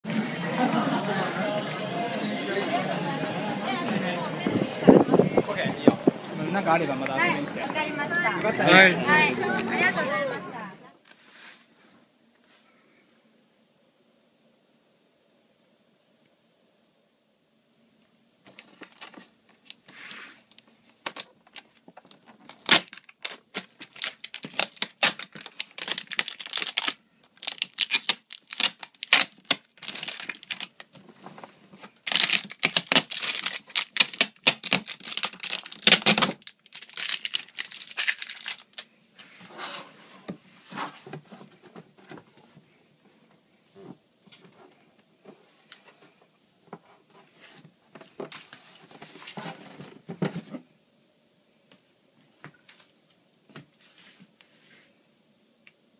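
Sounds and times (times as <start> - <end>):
cardboard and foam packing handled: 18.4 - 42.7, 46.8 - 50.7.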